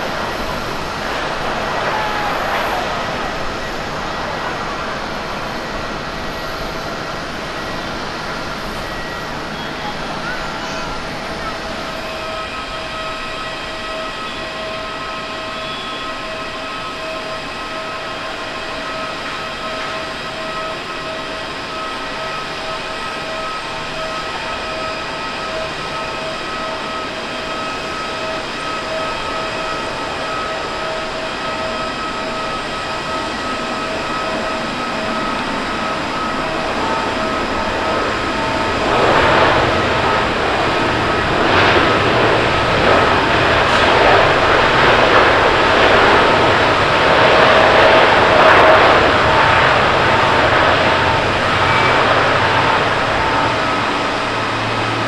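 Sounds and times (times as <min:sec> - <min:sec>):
rushing noise: 0:00.0 - 0:13.7, 0:29.8 - 0:55.0
jet engines whining: 0:00.0 - 0:55.0.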